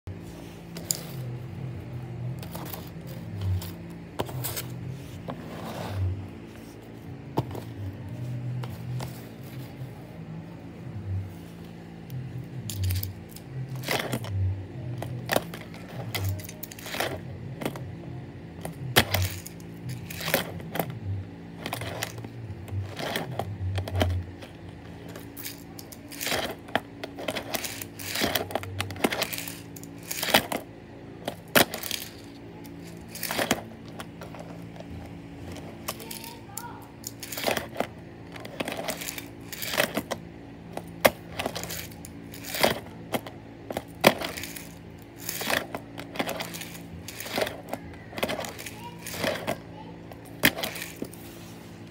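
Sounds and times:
steady low hum: 0:00.0 - 0:51.9.

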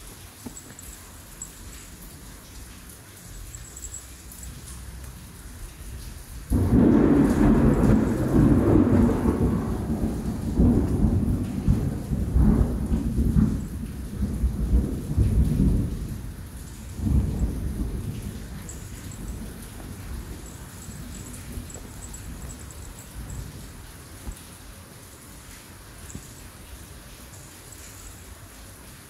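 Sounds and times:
rain: 0:00.0 - 0:29.0
thunder rolling: 0:06.5 - 0:23.9.

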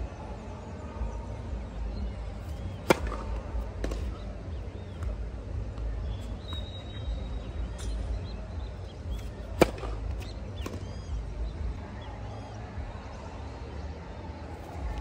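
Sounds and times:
steady low rumble: 0:00.0 - 0:15.0
racket hitting tennis ball: 0:02.4 - 0:05.1, 0:09.1 - 0:11.0.

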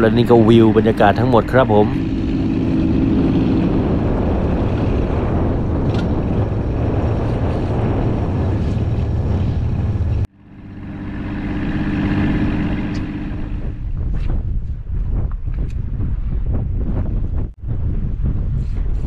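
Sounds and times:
boat engine hum: 0:00.0 - 0:14.1
wind: 0:00.0 - 0:19.0.

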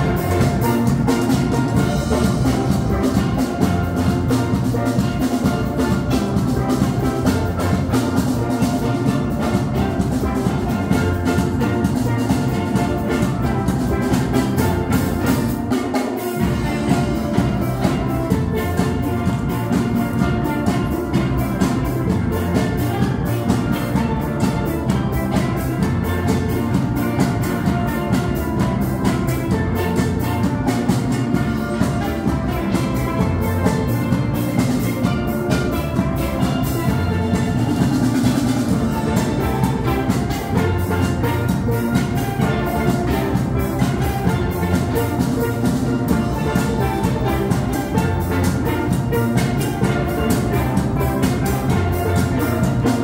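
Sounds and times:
drum kit: 0:00.0 - 0:53.0
steel band playing: 0:00.0 - 0:53.0.

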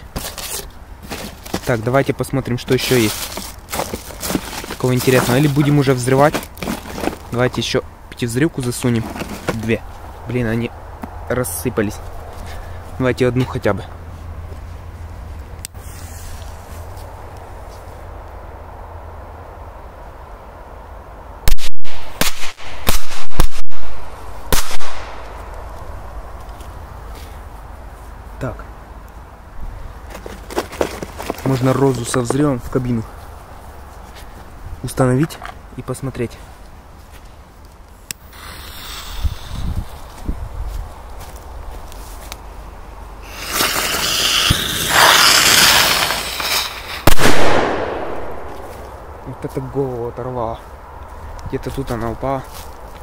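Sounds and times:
firecracker bangs: 0:21.5 - 0:25.2, 0:43.4 - 0:48.6
firework sparks hissing: 0:38.2 - 0:40.0, 0:43.2 - 0:47.4.

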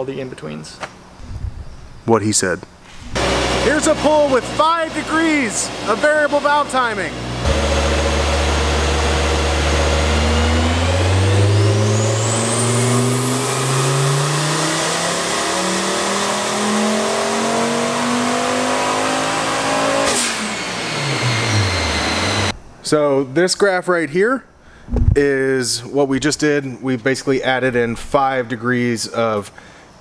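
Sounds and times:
turbo whine: 0:03.1 - 0:22.6
engine revving at full throttle: 0:03.2 - 0:22.5.

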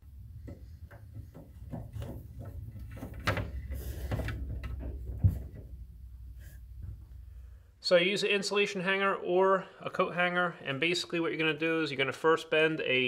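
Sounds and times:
wire scraping and tapping: 0:00.0 - 0:07.2.

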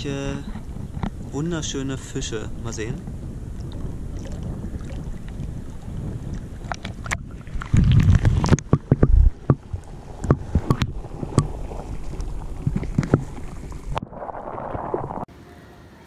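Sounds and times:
muffled underwater rumble: 0:00.0 - 0:15.3
sharp underwater clicks: 0:06.2 - 0:14.0.

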